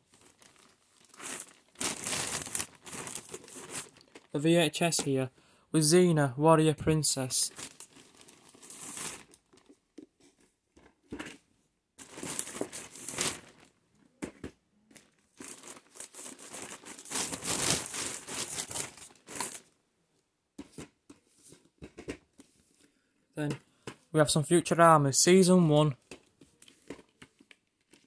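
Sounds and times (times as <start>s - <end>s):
plastic crinkling and rustling: 0.0s - 5.1s, 7.4s - 11.4s, 12.0s - 19.7s, 25.7s - 28.0s.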